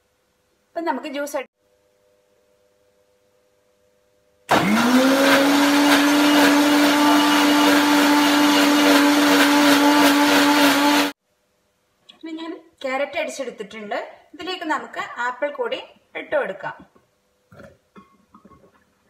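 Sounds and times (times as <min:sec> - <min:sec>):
mixer grinder motor running: 0:04.5 - 0:11.2.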